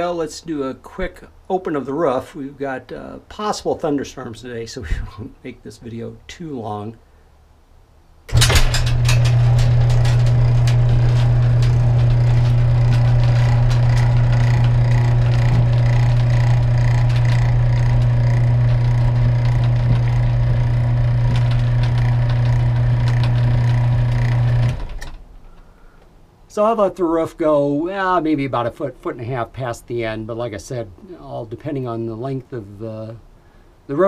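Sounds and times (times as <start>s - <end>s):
electric motor humming: 8.3s - 25.2s.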